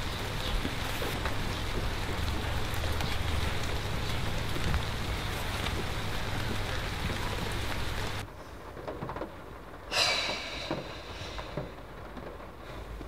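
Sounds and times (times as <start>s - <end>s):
rain pattering: 0.0s - 13.0s
low rumble: 9.9s - 12.3s.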